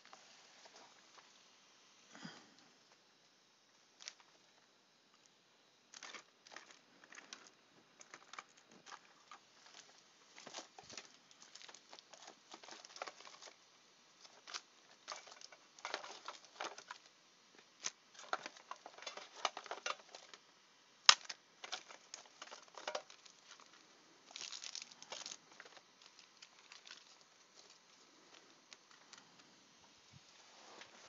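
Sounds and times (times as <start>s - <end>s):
trading cards rustling and crinkling: 5.9s - 13.6s, 14.2s - 20.5s, 21.1s - 29.5s.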